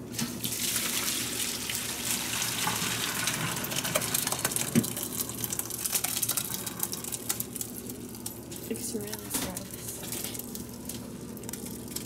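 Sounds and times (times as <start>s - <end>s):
water pouring into a sink: 0.0s - 8.2s.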